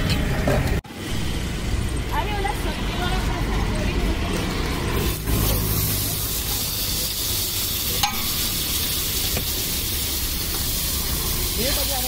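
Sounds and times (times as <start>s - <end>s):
butter sizzling on hot griddle: 3.4s - 12.0s.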